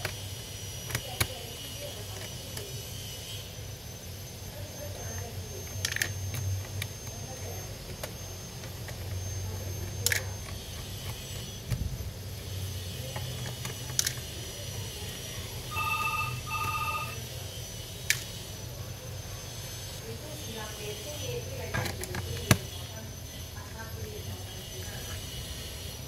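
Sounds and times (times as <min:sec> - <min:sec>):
small tools clicking: 0:05.6 - 0:09.2, 0:09.8 - 0:11.8, 0:13.1 - 0:14.4
short electronic beeps: 0:15.7 - 0:17.2.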